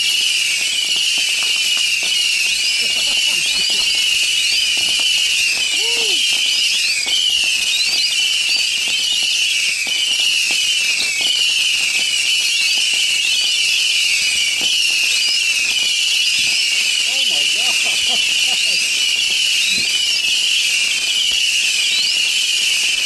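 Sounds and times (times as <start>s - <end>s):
fireworks pops and crackles: 0.0s - 23.0s.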